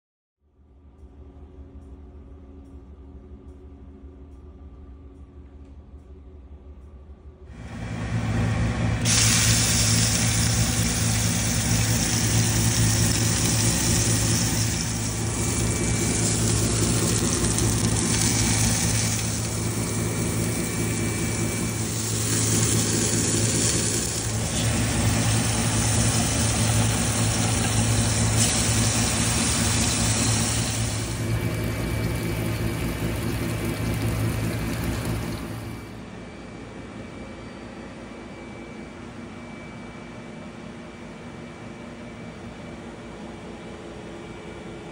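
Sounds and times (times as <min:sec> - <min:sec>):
low mechanical hum: 0:00.4 - 0:44.9
food sizzling in pans: 0:09.1 - 0:35.6.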